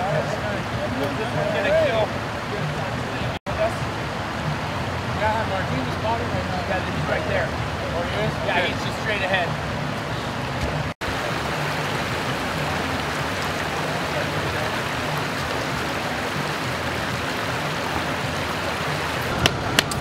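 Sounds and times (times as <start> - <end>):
floodwater rushing: 0.0 - 20.0.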